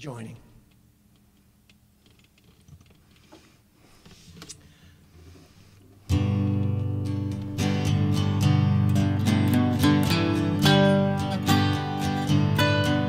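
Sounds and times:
faint clicks and knocks: 0:00.6 - 0:04.6
guitars strumming chords: 0:06.0 - 0:13.0.

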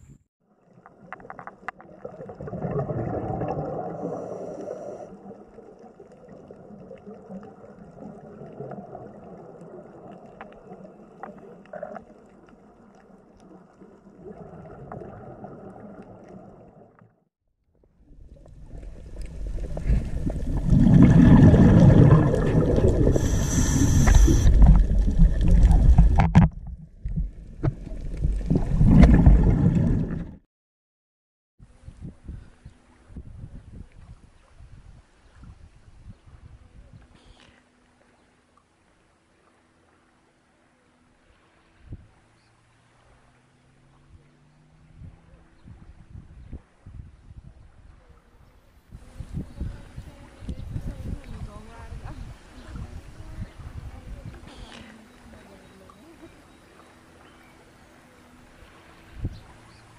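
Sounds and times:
underwater gurgle: 0:00.5 - 0:17.2, 0:18.0 - 0:30.4.

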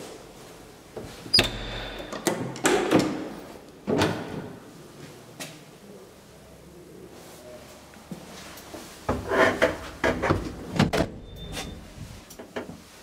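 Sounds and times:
heavy door clunks: 0:01.4 - 0:03.3.

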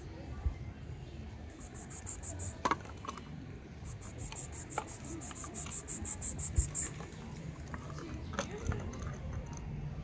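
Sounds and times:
insect chirping: 0:01.6 - 0:02.6, 0:03.8 - 0:06.9.

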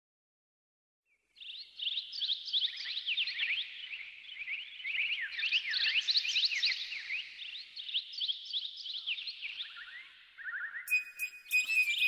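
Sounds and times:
flock of birds chirping: 0:01.4 - 0:12.0.

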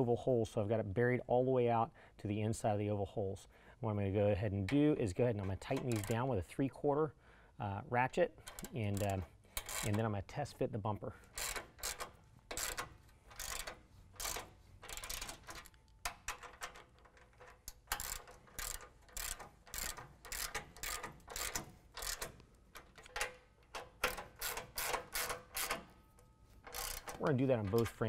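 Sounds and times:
socket ratchet clicking: 0:05.6 - 0:06.2, 0:08.4 - 0:10.0, 0:11.3 - 0:26.0, 0:26.6 - 0:28.0.

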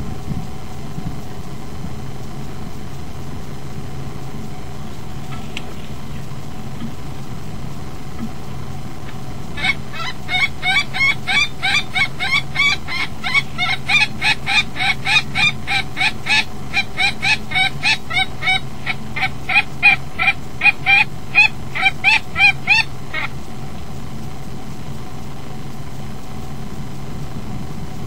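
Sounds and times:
steady low hum: 0:00.0 - 0:28.0
kestrel alarm calls: 0:09.0 - 0:23.5.

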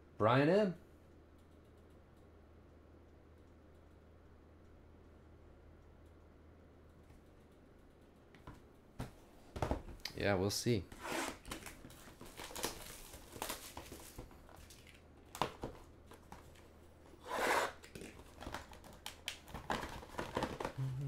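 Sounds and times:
plastic wrap tearing: 0:11.4 - 0:15.0
plastic wrap crinkling: 0:11.5 - 0:15.6.

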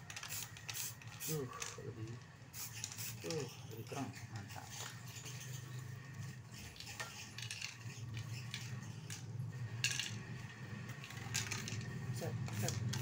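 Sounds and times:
small objects clicking and clattering: 0:06.8 - 0:10.3, 0:10.9 - 0:13.0.

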